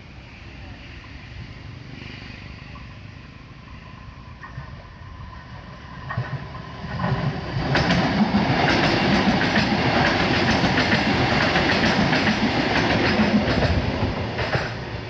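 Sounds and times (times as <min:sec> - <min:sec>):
train rumbling past: 0:00.0 - 0:15.0
wheels clacking over rail joints: 0:06.0 - 0:15.0.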